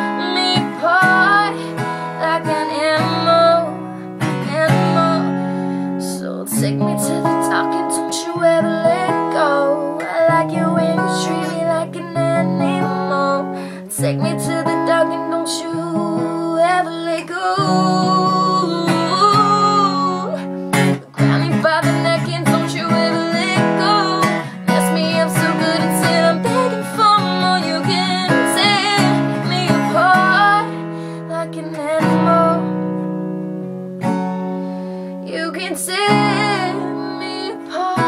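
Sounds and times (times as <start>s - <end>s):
woman singing: 0.0s - 33.1s, 35.2s - 38.0s
acoustic guitar strumming: 0.0s - 38.0s.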